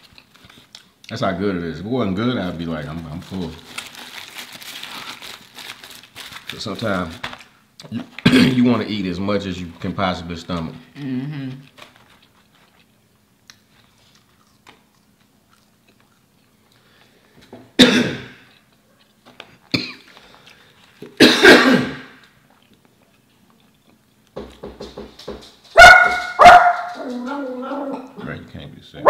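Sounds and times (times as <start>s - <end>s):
person coughing: 8.2s - 8.6s, 17.8s - 18.5s, 19.7s - 20.1s, 21.2s - 22.2s
dog barking: 25.8s - 27.0s.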